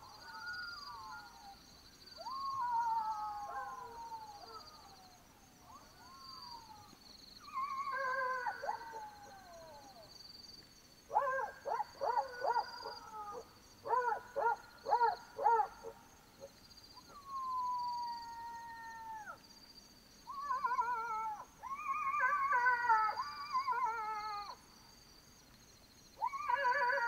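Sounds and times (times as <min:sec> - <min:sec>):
jackals yelping and howling: 0:07.4 - 0:10.0, 0:11.1 - 0:16.0, 0:20.2 - 0:24.6, 0:26.2 - 0:27.0.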